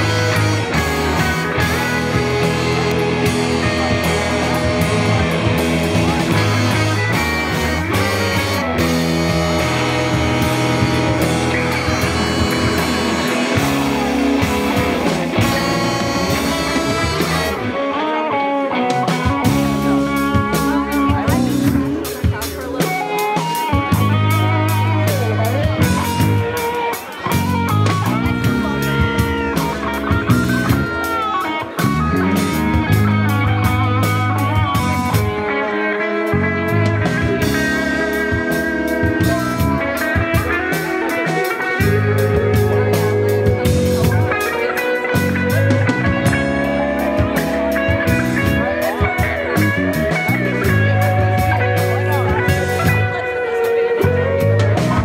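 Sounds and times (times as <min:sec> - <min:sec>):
drum hits: 0:00.0 - 0:17.7
bending gliding guitar notes: 0:00.0 - 0:55.0
live rock band playing: 0:00.0 - 0:55.0.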